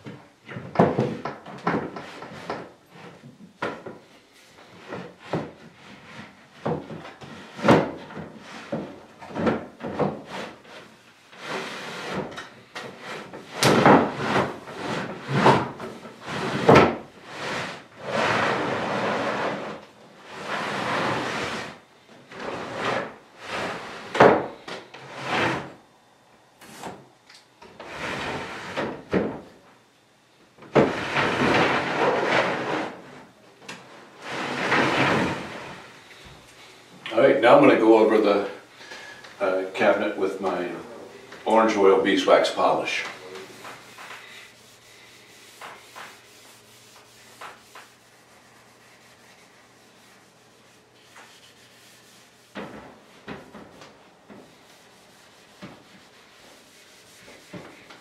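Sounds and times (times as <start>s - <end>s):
wooden tambour door sliding: 11.4s - 25.8s, 30.7s - 33.2s, 34.1s - 35.9s.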